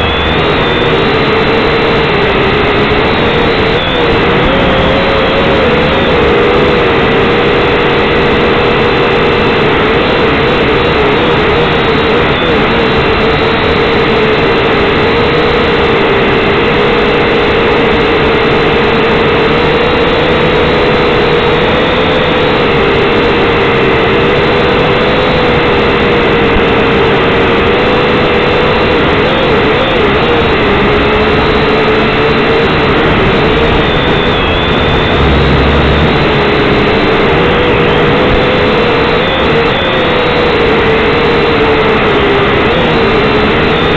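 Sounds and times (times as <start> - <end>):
drone propellers buzzing: 0.0 - 43.9.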